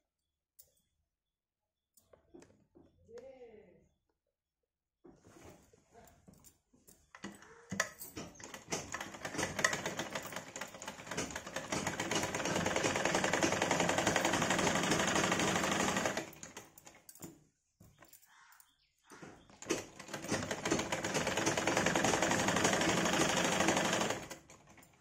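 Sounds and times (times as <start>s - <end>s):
sewing machine stitching: 8.2s - 16.8s, 19.6s - 25.0s.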